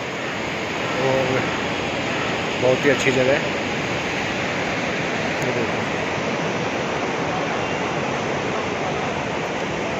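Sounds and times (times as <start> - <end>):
river rushing over boulders: 0.0 - 9.9.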